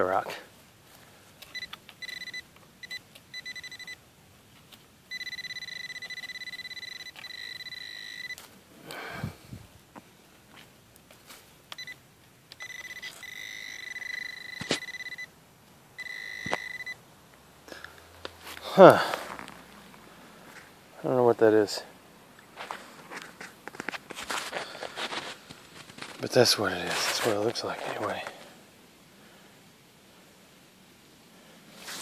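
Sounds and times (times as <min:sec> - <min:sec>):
metal detector probe beeping: 0:01.4 - 0:04.0, 0:05.1 - 0:08.5, 0:11.7 - 0:12.0, 0:12.6 - 0:15.3, 0:16.0 - 0:17.0
probe scraping in dirt: 0:22.6 - 0:27.5.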